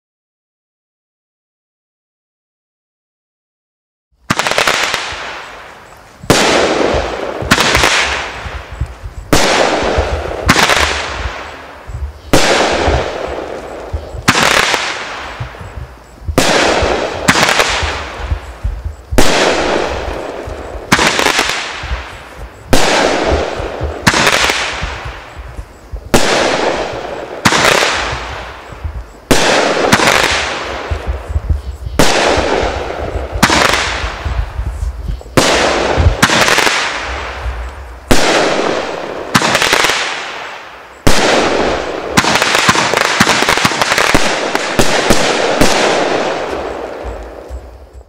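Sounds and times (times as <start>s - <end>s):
fireworks bangs with crackle: 4.3s - 48.0s.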